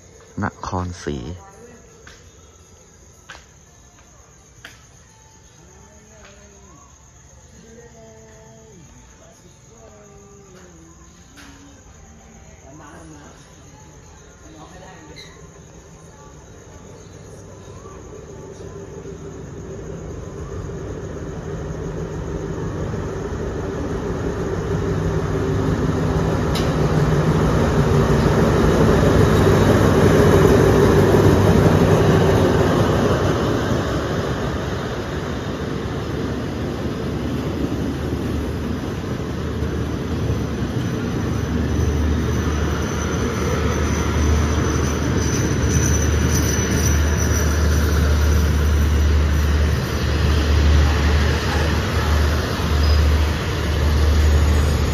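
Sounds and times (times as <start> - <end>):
diesel locomotive engine: 13.1 - 54.9
thin high squeal: 15.0 - 15.7, 41.4 - 50.4.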